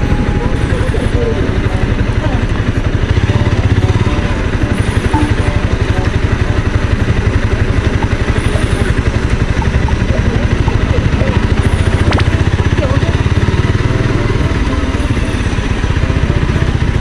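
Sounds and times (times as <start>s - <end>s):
motorcycle engine at low revs: 0.0s - 17.0s.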